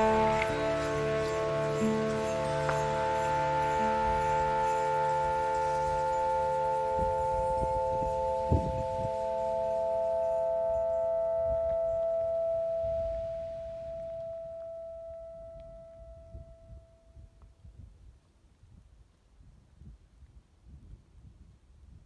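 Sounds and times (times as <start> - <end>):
bell-like metallic ringing chord: 0.0 - 17.2.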